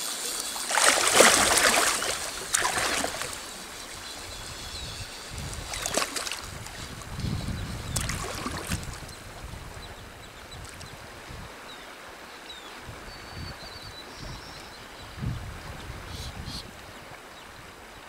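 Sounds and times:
rush of moving water: 0:00.0 - 0:18.0
boots splashing through water: 0:00.6 - 0:03.4, 0:05.7 - 0:06.5.

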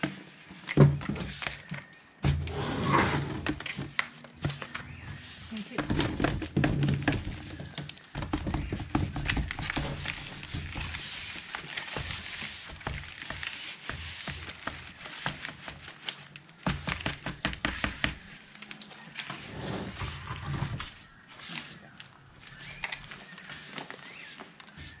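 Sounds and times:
scraping and knocks on plastic: 0:00.0 - 0:21.1.

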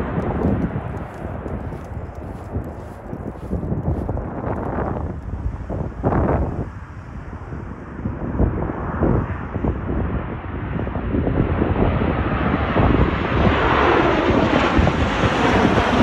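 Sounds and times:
jet airliner engine roar: 0:00.0 - 0:16.0
wind rumbling on microphone: 0:00.0 - 0:16.0.

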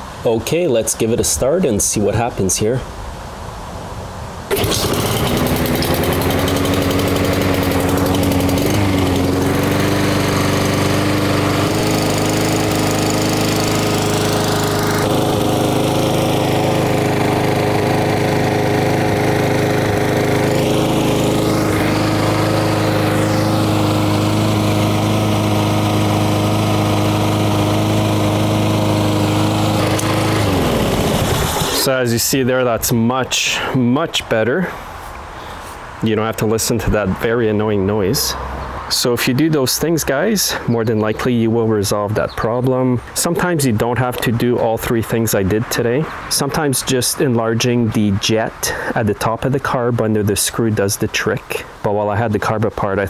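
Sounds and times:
lawn mower engine running steadily: 0:04.5 - 0:32.0.

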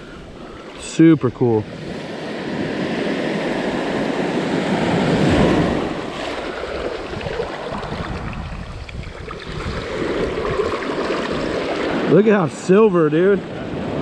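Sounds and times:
ocean surf washing: 0:00.0 - 0:14.0
wind buffeting microphone: 0:01.7 - 0:12.6.

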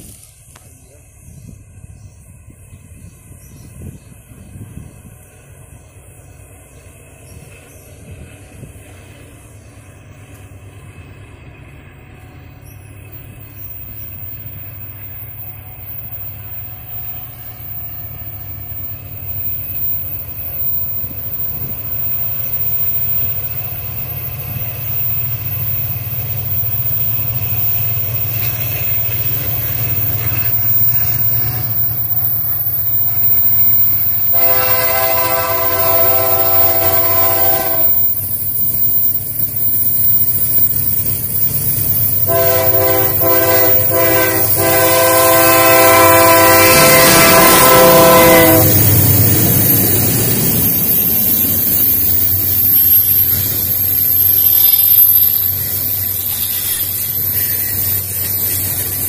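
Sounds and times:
diesel locomotives rumbling: 0:00.0 - 0:59.0
locomotive air horn blast: 0:34.2 - 0:38.2, 0:42.2 - 0:48.9.

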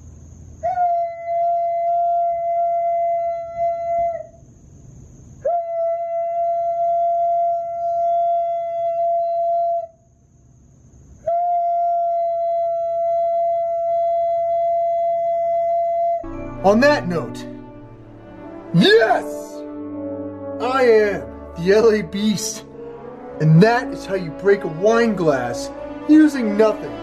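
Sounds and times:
man singing sustained high note: 0:16.2 - 0:27.0.

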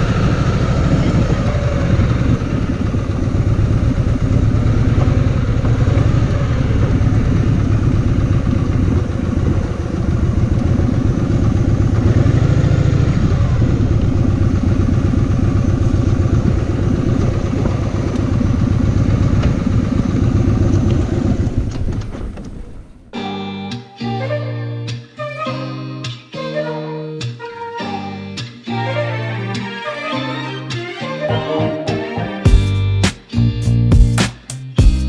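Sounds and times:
motorcycle engine running: 0:00.0 - 0:23.1.

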